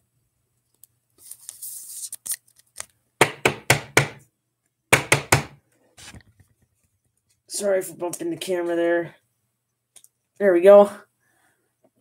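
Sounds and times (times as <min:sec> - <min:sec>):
hands knocking camera: 0:03.2 - 0:04.2, 0:05.0 - 0:05.6.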